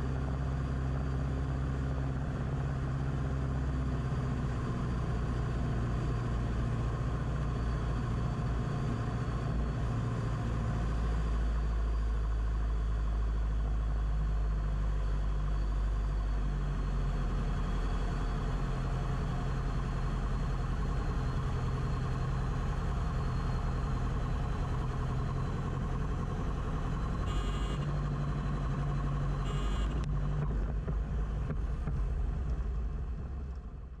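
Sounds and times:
piston aircraft engine running: 17.6s - 34.0s.

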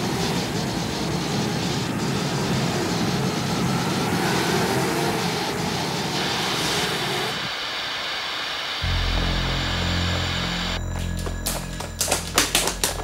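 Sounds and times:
loud steady rumbling: 8.8s - 13.0s.

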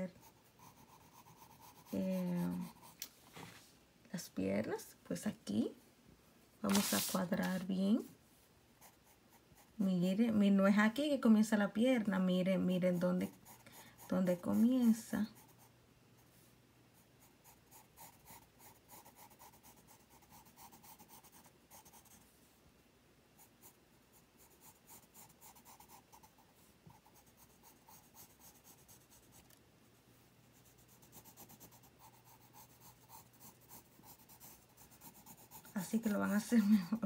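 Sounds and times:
pencil scratching on paper: 0.0s - 3.0s, 6.7s - 7.8s, 12.6s - 15.7s, 17.0s - 22.2s, 23.4s - 29.6s, 30.6s - 37.0s.

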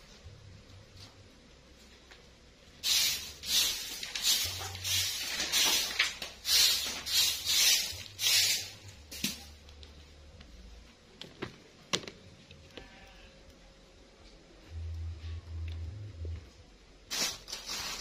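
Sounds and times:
broom sweeping a floor: 2.8s - 9.6s, 17.1s - 18.0s.

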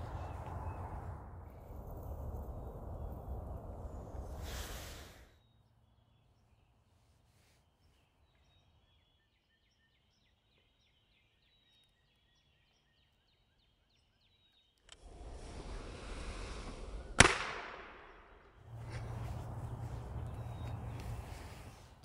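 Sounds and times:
steady outdoor noise: 0.0s - 6.8s, 14.8s - 22.0s
faint high birdsong: 0.0s - 15.0s, 18.1s - 22.0s.

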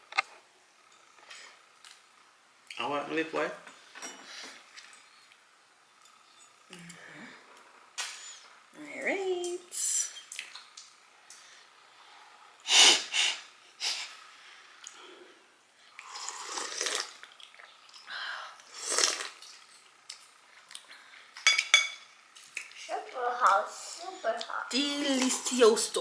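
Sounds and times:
person slurping soup: 16.0s - 17.2s, 18.7s - 19.4s.

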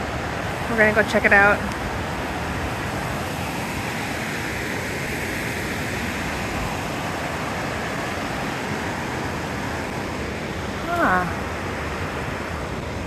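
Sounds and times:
river rushing over rocks: 0.0s - 13.0s.

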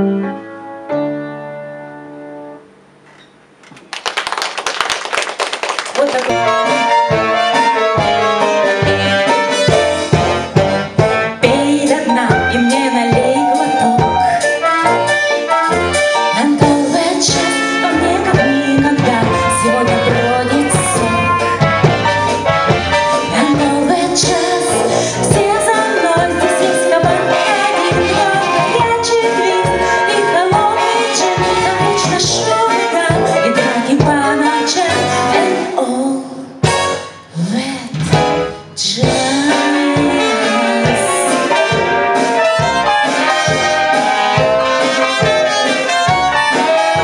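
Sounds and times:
instrumental accompaniment with beat: 6.2s - 35.6s, 38.0s - 47.0s
woman singing into a microphone: 11.4s - 14.4s, 16.4s - 21.5s, 23.3s - 36.6s, 37.3s - 38.1s, 38.8s - 41.7s.

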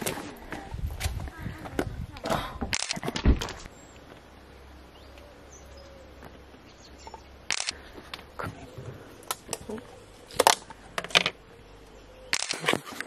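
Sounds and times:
sharp clicks: 2.7s - 3.6s, 7.5s - 7.8s, 12.3s - 13.0s
faint bird chirps: 4.8s - 7.4s.

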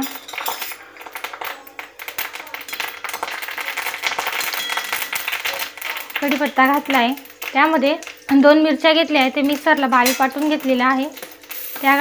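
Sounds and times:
leaves crackling in hot oil: 1.2s - 8.3s.

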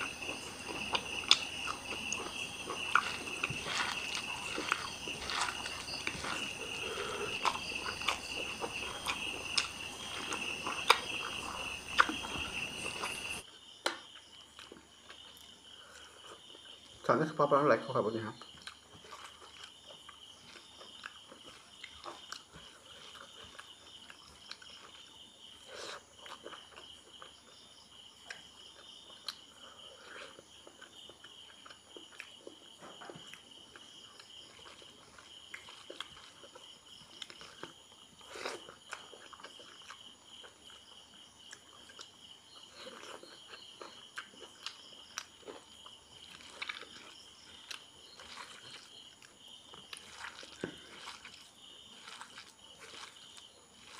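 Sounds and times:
fingers mashing rice: 0.0s - 13.4s, 42.8s - 53.9s
mouth chewing: 0.0s - 17.0s, 18.4s - 53.9s
insect trill: 0.0s - 53.9s.

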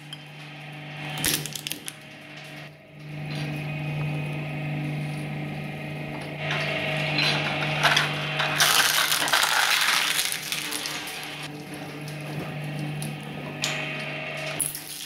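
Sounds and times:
shredder motor hum: 0.0s - 15.0s
plastic crunching and cracking: 8.6s - 11.2s.

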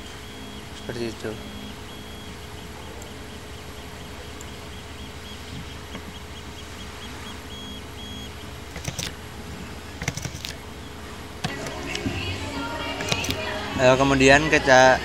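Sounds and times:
faint high-pitched beeps: 0.0s - 9.0s
sharp clicks: 0.0s - 9.2s, 9.9s - 12.1s, 13.0s - 13.5s
room hum and hiss: 0.0s - 15.0s.

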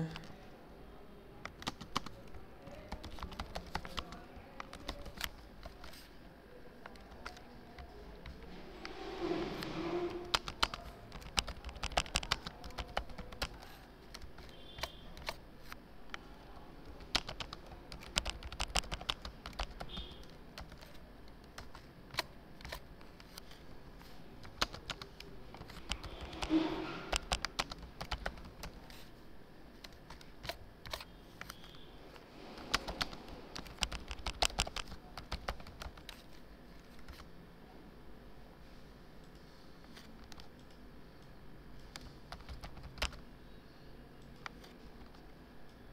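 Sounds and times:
computer keyboard typing: 1.4s - 6.1s, 6.8s - 8.5s, 9.8s - 29.1s, 29.7s - 31.8s, 32.6s - 37.3s, 39.2s - 40.8s, 41.8s - 43.2s.

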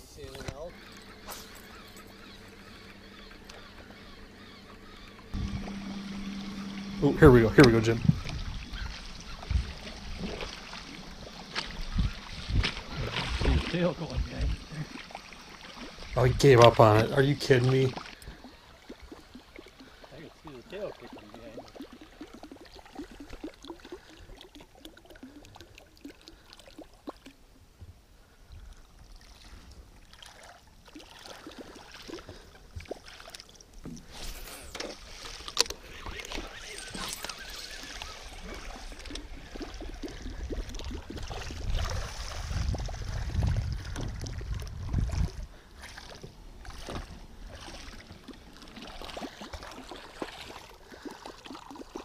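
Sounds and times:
water sloshing and splashing: 0.2s - 27.5s, 28.7s - 52.0s.

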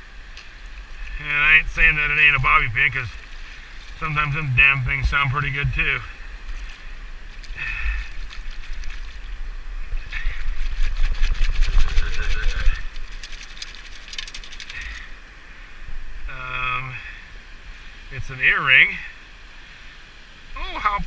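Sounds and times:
water sloshing: 6.4s - 15.1s
sand and grit rattling in basket: 10.2s - 15.0s.

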